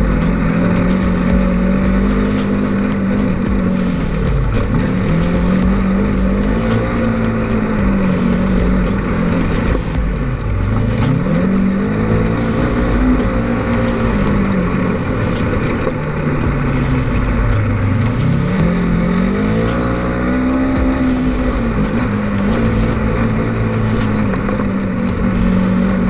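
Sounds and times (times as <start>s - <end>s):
engine revving: 0.0s - 26.0s.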